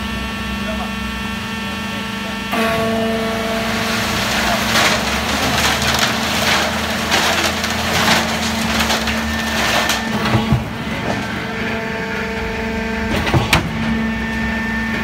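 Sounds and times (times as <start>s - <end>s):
concrete mixer droning: 0.0s - 15.0s
wet concrete sliding onto steel grille: 3.8s - 10.5s.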